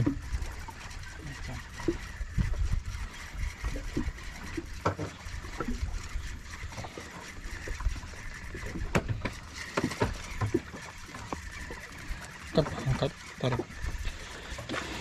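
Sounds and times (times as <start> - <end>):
water lapping against boat hull: 0.0 - 15.0
sharp knocks and clicks: 8.7 - 10.6.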